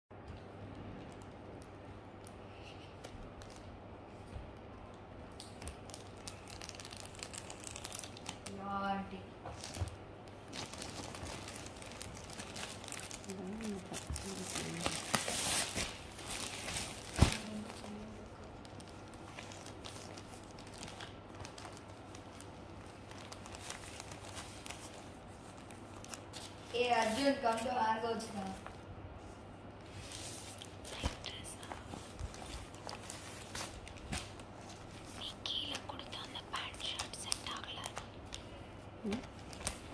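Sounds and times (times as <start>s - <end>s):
faint low hum: 0.1s - 39.9s
packaging crinkling: 5.3s - 8.7s, 9.5s - 27.4s, 29.9s - 39.9s.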